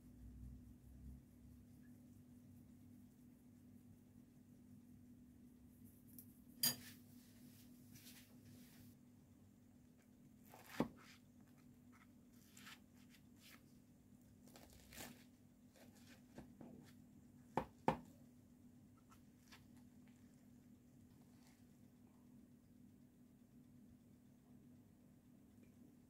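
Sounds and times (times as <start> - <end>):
faint steady hum: 0.0 - 26.0
spatula cutting crisp bread pudding: 10.0 - 13.7, 14.4 - 18.0.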